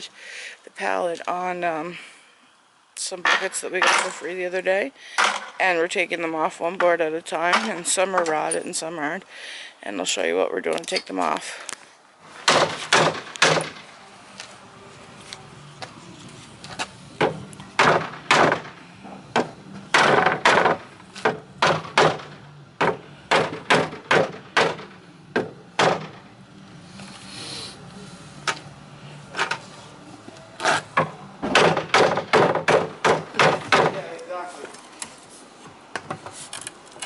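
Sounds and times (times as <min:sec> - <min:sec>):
wooden knocks and thuds: 0:12.4 - 0:13.8, 0:17.2 - 0:26.2, 0:31.0 - 0:34.0.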